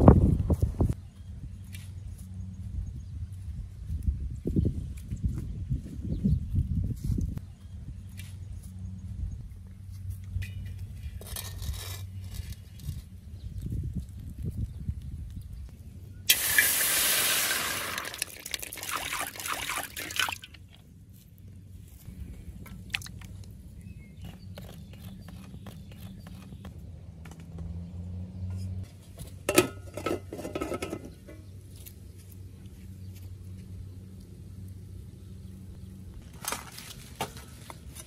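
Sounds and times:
water hissing in a hot wok: 16.3 - 19.7
metal lid clanking on wok: 29.5 - 31.4.

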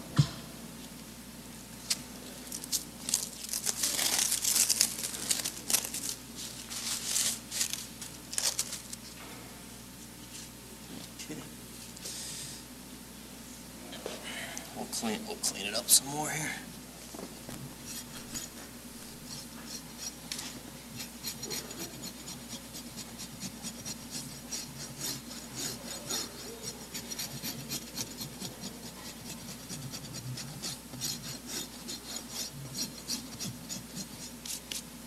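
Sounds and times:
rasp filing horse hoof: 17.8 - 34.8.

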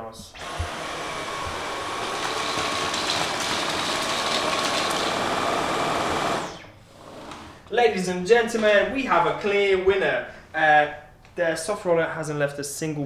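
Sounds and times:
vacuum cleaner running: 0.3 - 7.7.

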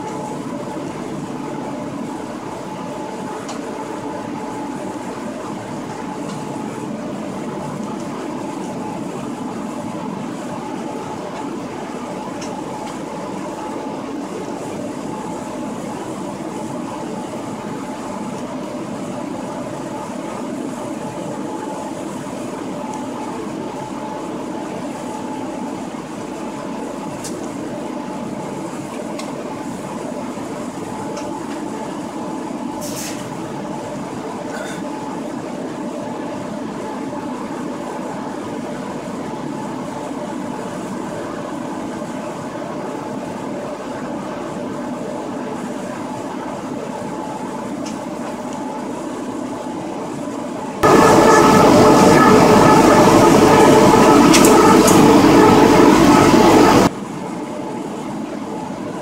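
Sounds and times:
locomotive rolling and running noise: 44.3 - 56.9
steady tonal hum: 50.7 - 56.9.

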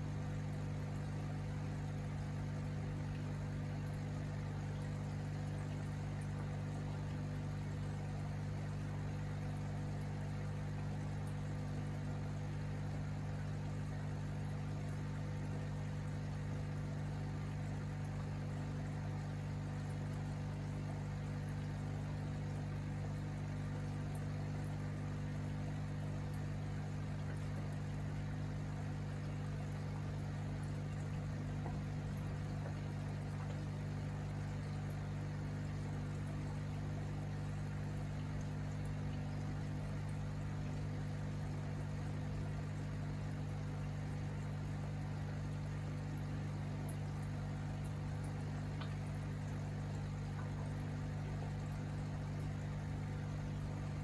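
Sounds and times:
aquarium equipment hum: 0.0 - 54.0
water bubbling: 10.8 - 54.0.

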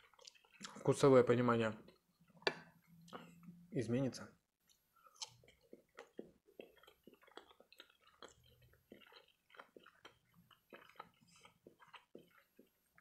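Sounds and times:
close chewing: 0.0 - 2.4, 4.7 - 13.0.

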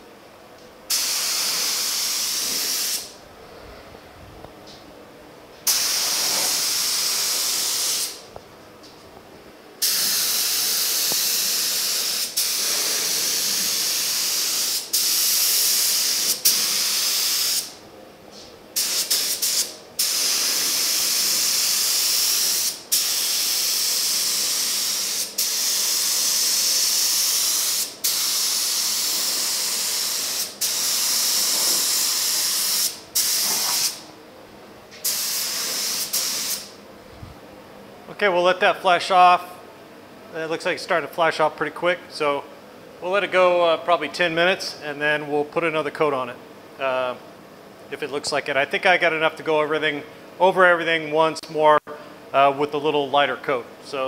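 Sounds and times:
spray gun hissing: 0.9 - 3.1, 5.6 - 8.2, 9.8 - 17.8, 18.8 - 34.0, 35.0 - 36.7.

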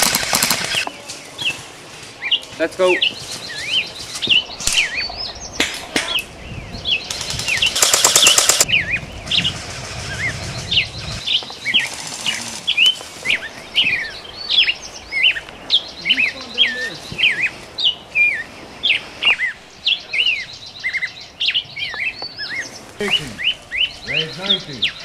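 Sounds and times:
airsoft rifle shots: 0.0 - 0.9, 7.2 - 8.7
birds chirping: 0.0 - 25.0.

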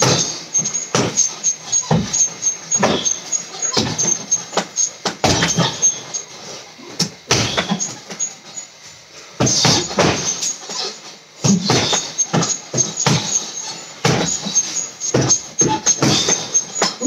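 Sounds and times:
punches hitting heavy bag: 5.0 - 5.8, 9.4 - 10.4, 11.4 - 13.4, 14.0 - 16.5.

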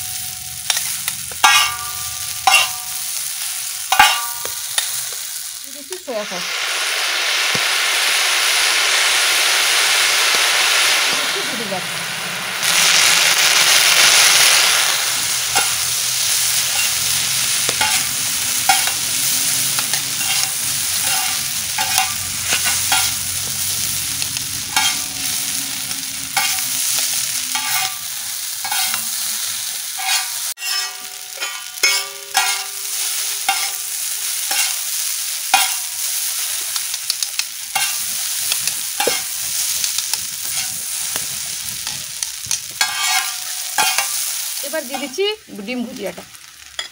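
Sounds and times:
noodles sizzling in pan: 0.0 - 46.9
spatula scraping pan: 0.7 - 2.8, 16.5 - 23.2, 24.7 - 33.9, 34.5 - 34.9, 36.6 - 45.3.

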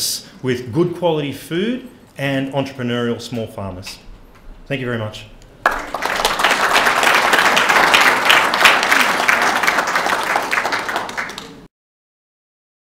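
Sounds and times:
audience applauding: 5.6 - 11.7.

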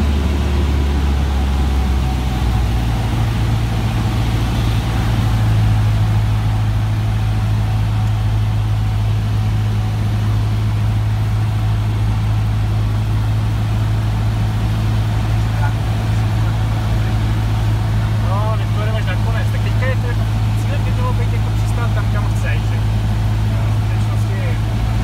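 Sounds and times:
propeller plane engine droning: 0.0 - 25.0.

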